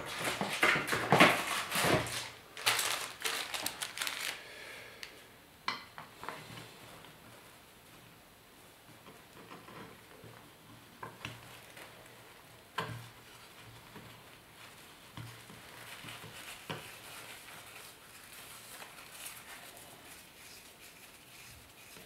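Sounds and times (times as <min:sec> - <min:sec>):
filter paper rustling and crinkling: 0:00.0 - 0:04.4, 0:11.3 - 0:22.0.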